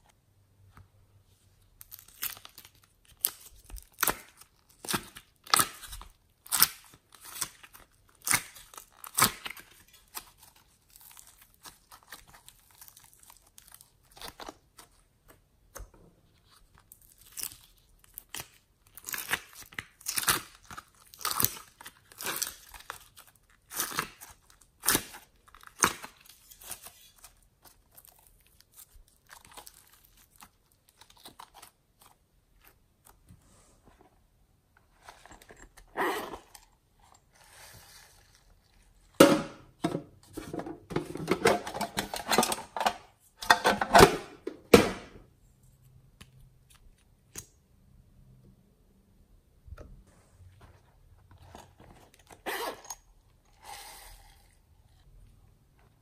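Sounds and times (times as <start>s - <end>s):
sticky slime crackles: 1.6s - 15.4s, 16.2s - 33.2s.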